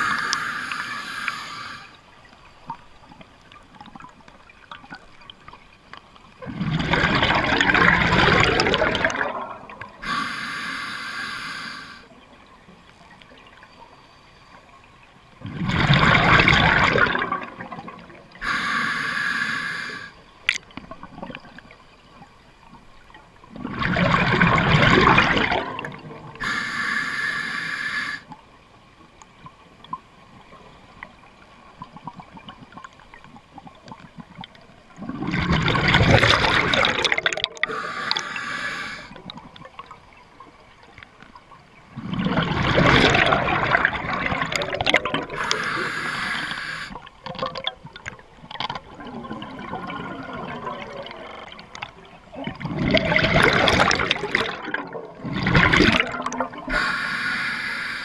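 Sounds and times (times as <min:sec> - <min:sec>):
regulator inhalation hiss: 0:00.0 - 0:02.0, 0:10.0 - 0:12.1, 0:18.4 - 0:20.2, 0:26.4 - 0:28.4, 0:37.7 - 0:39.2, 0:45.4 - 0:47.1, 0:56.7 - 0:58.0
exhaled bubbles rushing: 0:06.4 - 0:10.0, 0:15.4 - 0:18.3, 0:23.5 - 0:26.4, 0:33.6 - 0:38.2, 0:41.9 - 0:45.6, 0:47.2 - 0:56.9.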